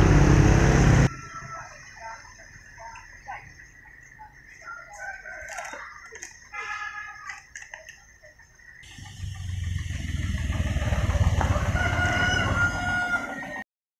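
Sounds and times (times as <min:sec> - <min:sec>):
rooster crowing: 0:04.6 - 0:06.0, 0:11.0 - 0:13.6.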